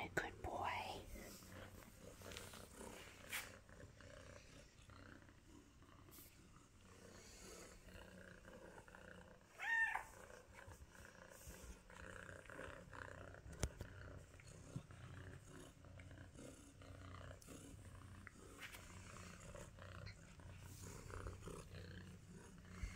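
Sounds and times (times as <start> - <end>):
cat purring: 0.0 - 22.9
cat meow: 9.6 - 10.2.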